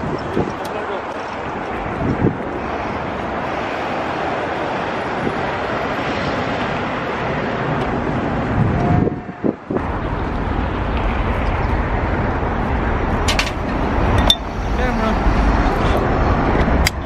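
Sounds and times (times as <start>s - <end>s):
wind on microphone: 0.0s - 17.0s
metal tool clink: 13.3s - 14.5s.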